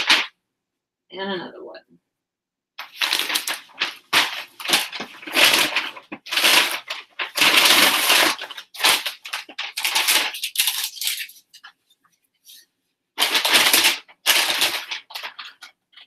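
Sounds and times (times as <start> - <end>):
shipping mailer crinkling: 2.8 - 11.6, 13.2 - 16.0.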